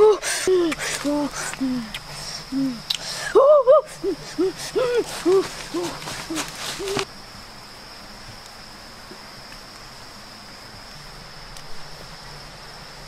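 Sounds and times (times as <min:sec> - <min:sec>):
short hooting calls: 0:00.0 - 0:07.1
forest background: 0:00.0 - 0:13.0
high-pitched insect drone: 0:00.0 - 0:13.0.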